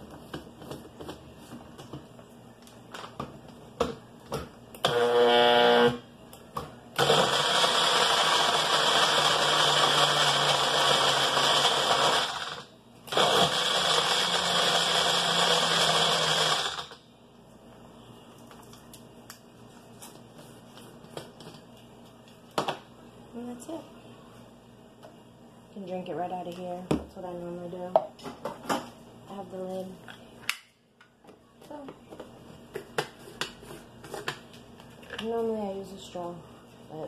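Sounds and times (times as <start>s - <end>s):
blender crushing ice: 4.8s - 6.0s, 7.0s - 17.0s.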